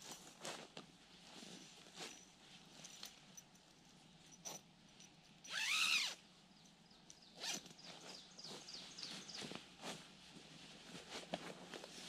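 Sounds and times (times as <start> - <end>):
soft rustles and knocks: 0.0 - 5.4, 7.0 - 12.0
zipper pulled: 5.5 - 6.2, 7.4 - 7.8.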